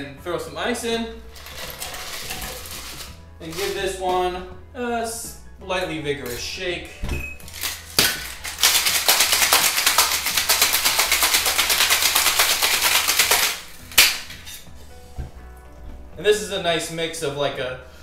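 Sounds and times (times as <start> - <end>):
ice rattling in cocktail shaker: 1.3 - 3.9, 7.4 - 14.1.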